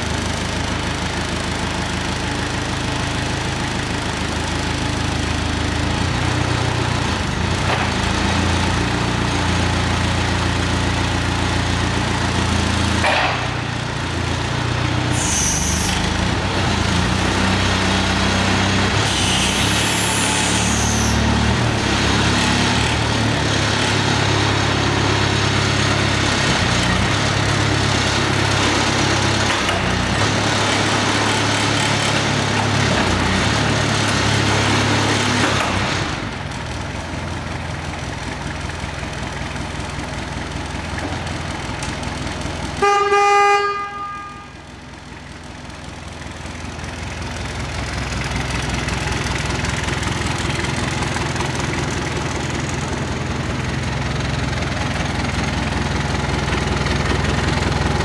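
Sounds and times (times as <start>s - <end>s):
forklift diesel engine revving: 0.0s - 58.0s
brief high squeals: 15.2s - 16.0s, 19.1s - 21.2s.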